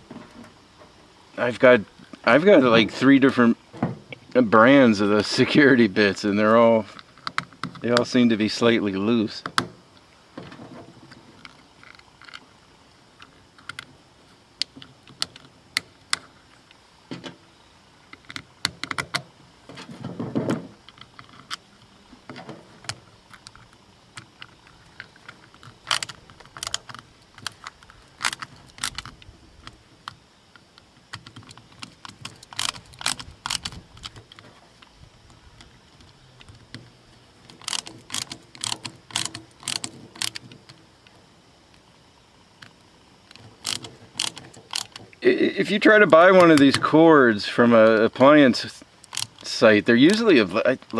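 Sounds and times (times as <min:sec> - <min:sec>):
plastic parts clicking: 0:18.1 - 0:41.2, 0:42.6 - 0:45.2, 0:49.0 - 0:50.9.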